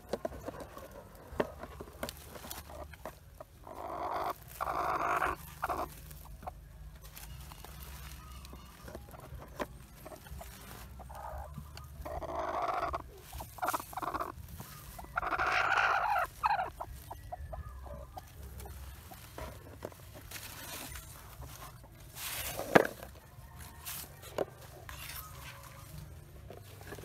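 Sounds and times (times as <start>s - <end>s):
hen clucking: 0.0s - 27.0s
hen calling harshly: 11.0s - 18.2s.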